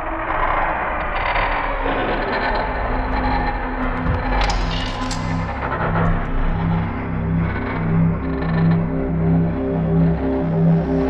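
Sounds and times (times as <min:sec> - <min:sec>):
soundtrack music with low notes: 0:00.7 - 0:11.0.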